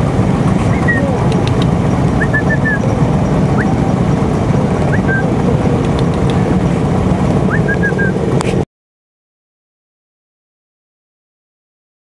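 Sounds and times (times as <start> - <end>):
scooter engines idling: 0.0 - 8.6.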